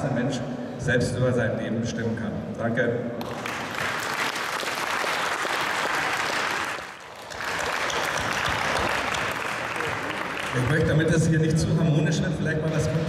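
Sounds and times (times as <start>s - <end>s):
audience applauding: 3.2s - 11.1s.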